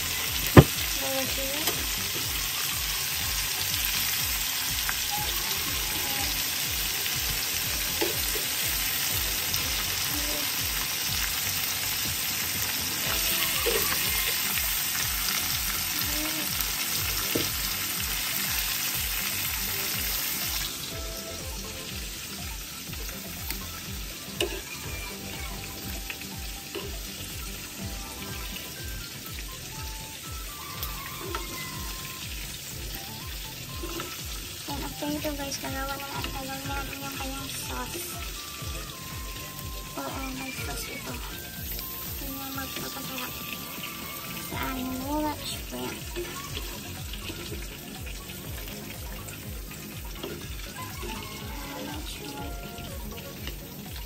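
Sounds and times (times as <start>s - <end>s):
shrimp sizzling in hot oil: 0.0s - 54.0s
sharp knock: 0.6s - 0.8s.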